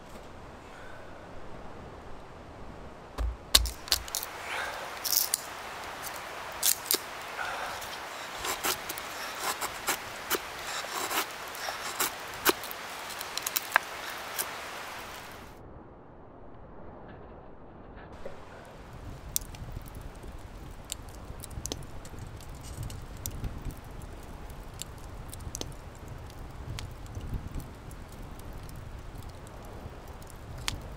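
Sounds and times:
hatchet knocking on wood: 0:03.2 - 0:03.8
blade scraping wood: 0:07.8 - 0:14.5.

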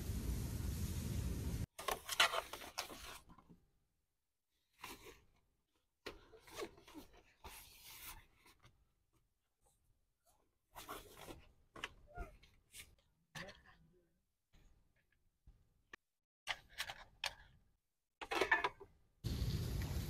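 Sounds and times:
wind and rain: 0:00.0 - 0:01.7, 0:19.2 - 0:20.0
rustling and scraping of handling: 0:01.6 - 0:03.7, 0:04.5 - 0:13.8.

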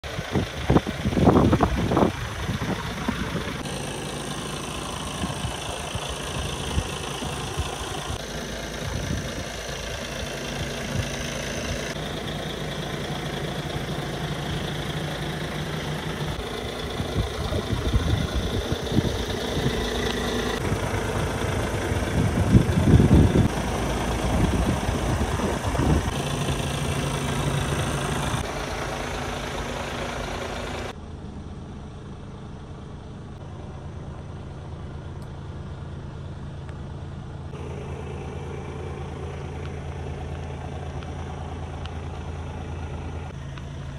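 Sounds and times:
truck engine idling: 0:00.0 - 0:43.9.

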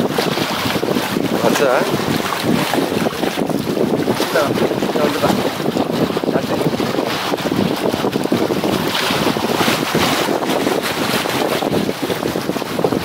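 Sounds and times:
waves splashing against rocks: 0:00.0 - 0:13.0
wind buffeting microphone: 0:00.0 - 0:13.0.

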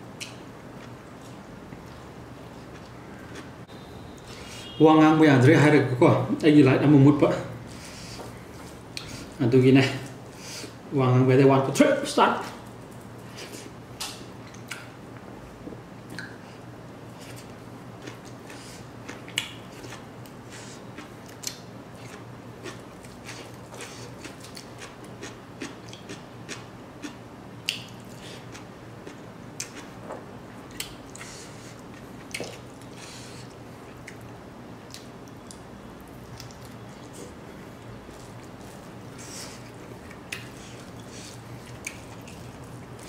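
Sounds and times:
person chewing with mouth clicks: 0:02.6 - 0:03.6, 0:17.2 - 0:30.0, 0:30.7 - 0:37.4, 0:38.1 - 0:43.0.

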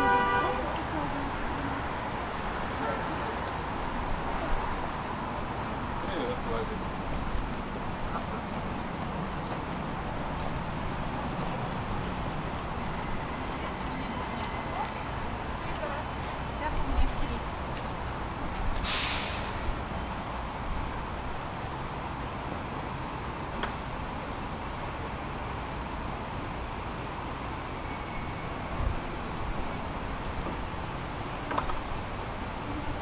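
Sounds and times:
tram rumbling: 0:00.0 - 0:33.0
short hiss: 0:18.8 - 0:19.7.

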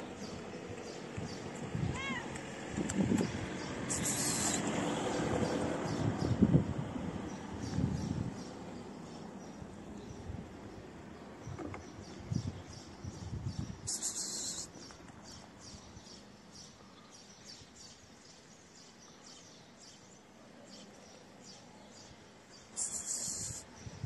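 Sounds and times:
small birds chirping: 0:00.0 - 0:06.6, 0:07.3 - 0:24.0
short hiss: 0:22.8 - 0:23.6.

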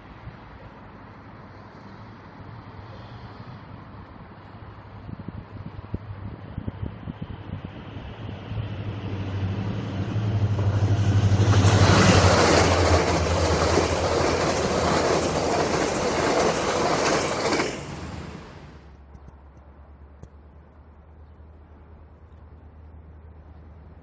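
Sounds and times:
locomotive engine drone: 0:07.6 - 0:23.9
train wheels on rails: 0:08.8 - 0:18.9.

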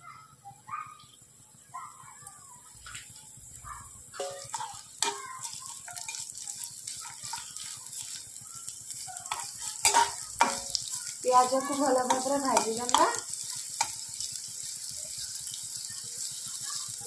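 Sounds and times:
onions sizzling in hot oil: 0:01.4 - 0:17.0
spatula scraping pan: 0:04.2 - 0:08.2, 0:08.9 - 0:14.2.

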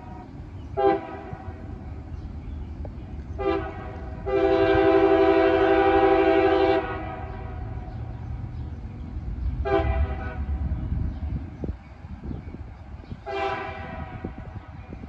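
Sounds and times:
locomotive horn blasts: 0:00.0 - 0:01.7, 0:03.4 - 0:07.8, 0:09.6 - 0:10.7, 0:13.2 - 0:14.6
diesel engine rumble: 0:00.0 - 0:15.0.

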